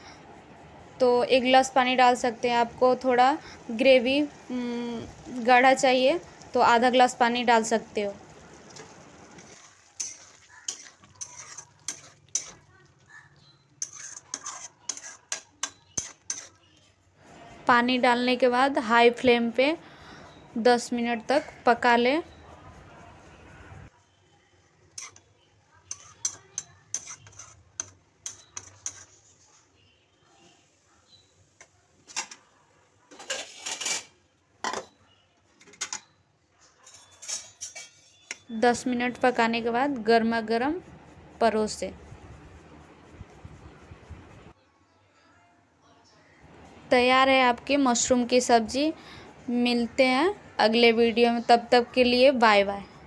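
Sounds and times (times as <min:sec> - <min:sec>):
spatula scraping a metal pan: 0:05.0 - 0:16.8, 0:24.9 - 0:29.8, 0:33.1 - 0:34.9, 0:36.8 - 0:38.6.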